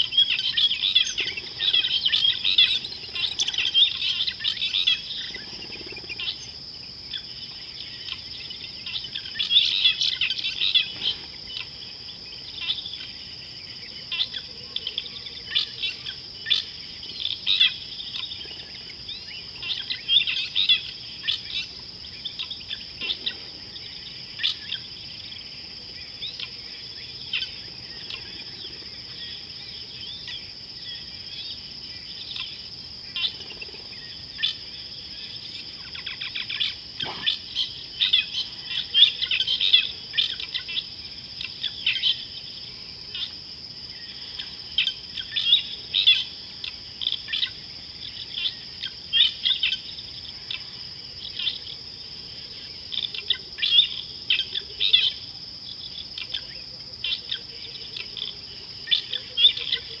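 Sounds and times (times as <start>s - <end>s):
birds chirping: 0.0s - 40.8s
high-pitched insect drone: 0.0s - 60.0s.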